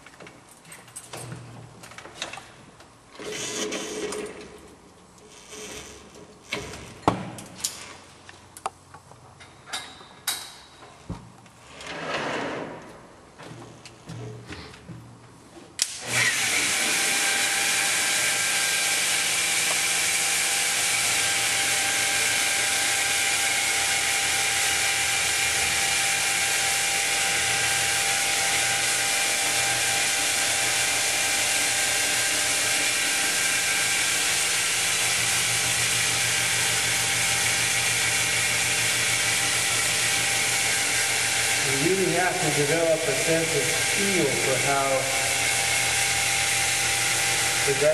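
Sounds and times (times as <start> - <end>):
electric polisher whining on wet stone: 16.0 - 47.9.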